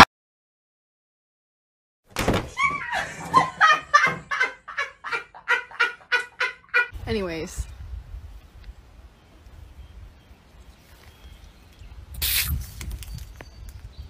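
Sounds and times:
person laughing hard: 2.6s - 6.9s.

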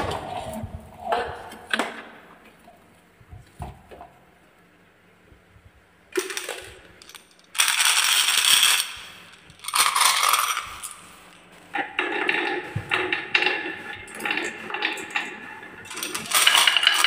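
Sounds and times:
marbles clattering together: 6.2s - 13.6s, 15.9s - 17.0s.

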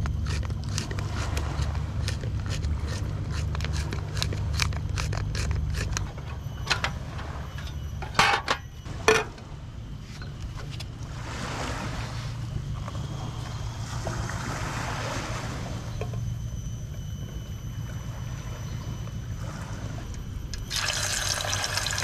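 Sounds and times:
pepper grinder clicking and crunching: 0.0s - 6.1s
low rumble: 0.0s - 20.7s.

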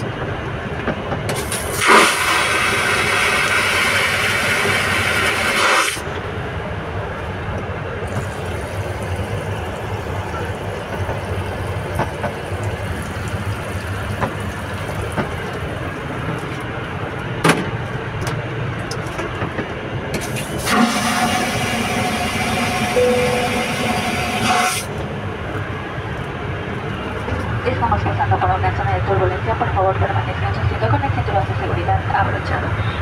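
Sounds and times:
airplane cabin engine drone: 0.0s - 33.0s
hiss: 1.4s - 6.0s
steady hum: 23.0s - 26.1s.

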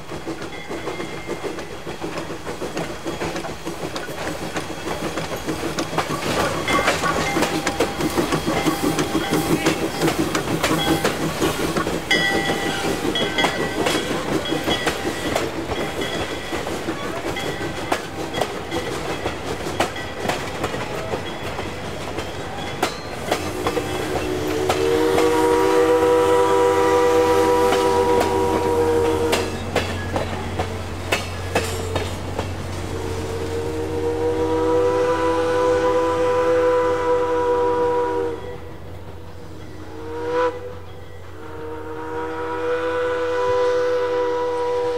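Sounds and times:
train wheels clicking over rail joints: 0.0s - 35.2s
steam locomotive whistle: 6.3s - 15.4s, 22.4s - 30.7s, 32.8s - 44.9s.

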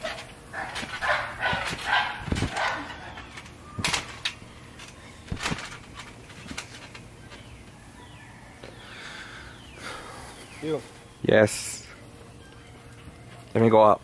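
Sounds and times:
faint bird chirps: 7.2s - 13.6s.

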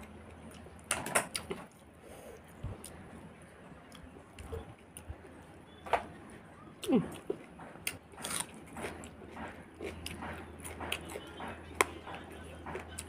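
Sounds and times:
person chewing: 6.8s - 13.0s.

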